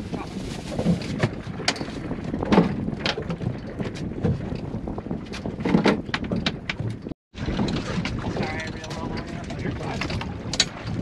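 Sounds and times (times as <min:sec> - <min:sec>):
wind buffeting microphone: 0:00.0 - 0:11.0
water splashes: 0:07.3 - 0:11.0.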